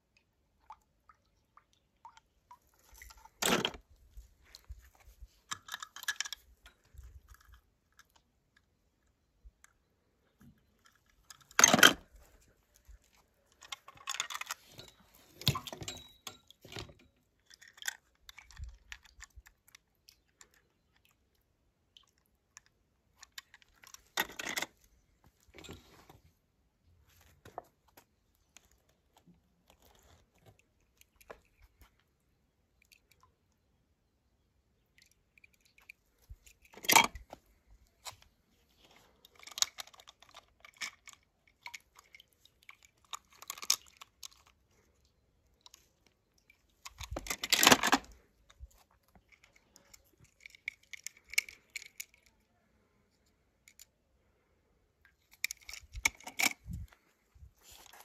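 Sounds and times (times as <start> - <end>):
toy cars clicking and clattering: 5.5 - 6.5, 17.3 - 21.0, 39.0 - 44.9, 49.1 - 52.3.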